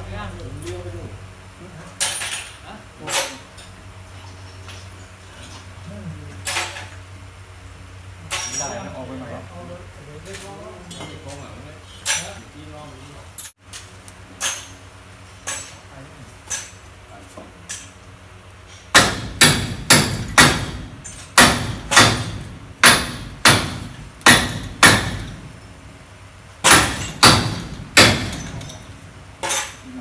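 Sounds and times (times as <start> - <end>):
chain hoist metallic clanks: 8.3 - 8.9, 16.4 - 16.9, 26.8 - 29.9.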